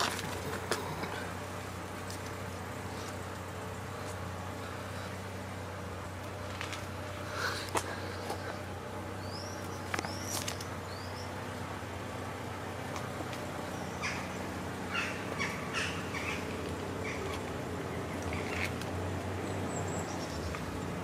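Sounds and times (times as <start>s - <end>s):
steady low hum: 0.0s - 21.0s
harsh animal calls: 13.8s - 18.8s.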